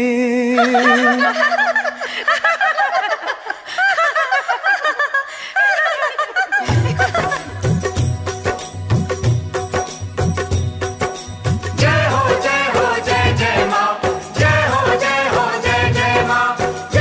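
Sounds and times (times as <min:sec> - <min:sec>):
sung devotional song: 0:00.0 - 0:17.0
children giggling and laughing: 0:00.6 - 0:07.7
music with heavy drum beat: 0:06.7 - 0:17.0.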